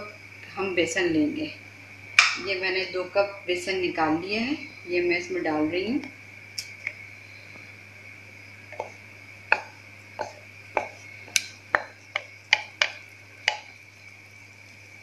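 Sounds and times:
wooden spatula tapping glass bowl: 8.7s - 13.7s.

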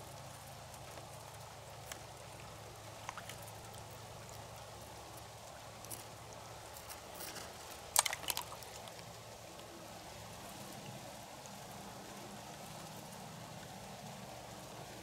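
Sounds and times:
oysters clicking and crackling: 0.7s - 9.7s.

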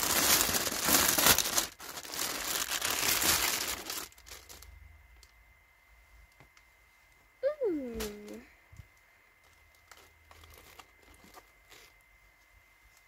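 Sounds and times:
plastic bag crinkling: 0.0s - 4.8s, 9.4s - 12.0s.

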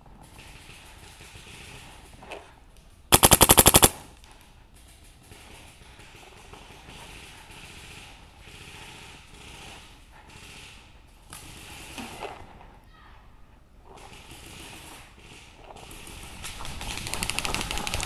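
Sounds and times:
paintball marker rapid firing: 3.1s - 4.1s.

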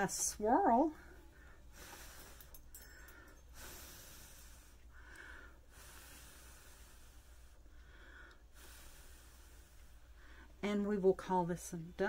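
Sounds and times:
low steady hum: 0.0s - 12.0s
person breathing slowly: 1.0s - 10.6s.

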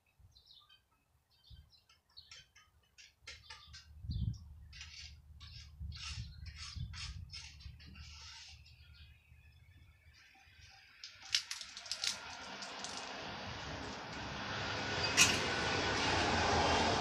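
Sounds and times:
road vehicle approaching: 10.5s - 17.0s
sharp clicks or cracks: 11.0s - 13.2s.

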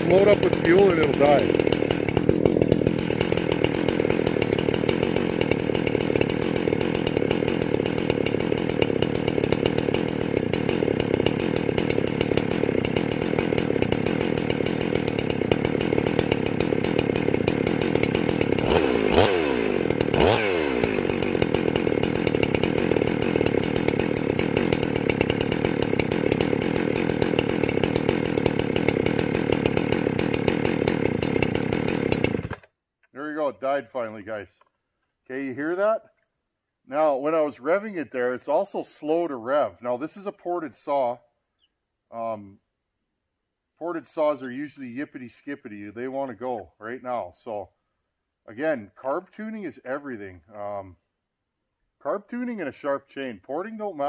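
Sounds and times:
chainsaw idling and revving: 0.0s - 32.8s.

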